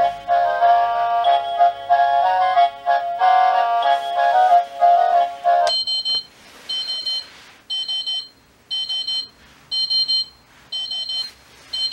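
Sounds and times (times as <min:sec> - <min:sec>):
rapid high alarm beeps: 0:05.7 - 0:11.9.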